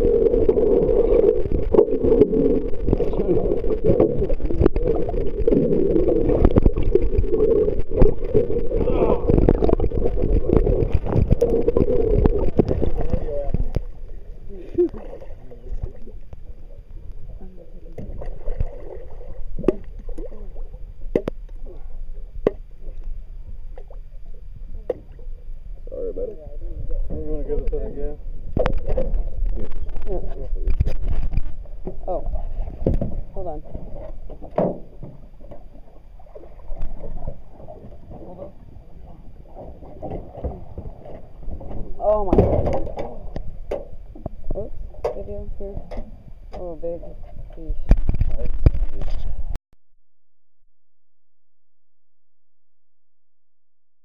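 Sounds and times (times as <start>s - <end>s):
wind noise: 0.0s - 15.1s, 47.2s - 49.6s
microphone handling rumble: 0.0s - 23.8s, 24.4s - 35.8s, 36.6s - 49.6s
water sloshing against boat hull: 26.8s - 49.4s.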